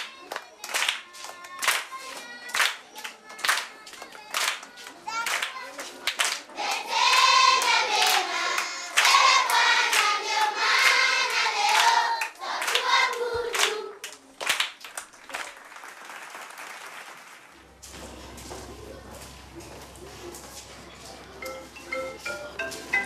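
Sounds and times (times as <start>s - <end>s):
hand claps: 0.0s - 17.5s
low background noise: 0.0s - 23.0s
children singing in chorus: 6.5s - 14.1s.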